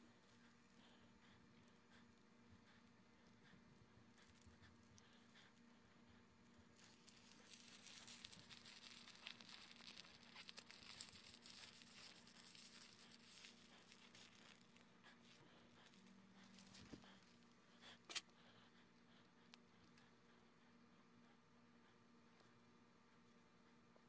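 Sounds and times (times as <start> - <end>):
crackling crinkling rustle: 6.4 - 18.2.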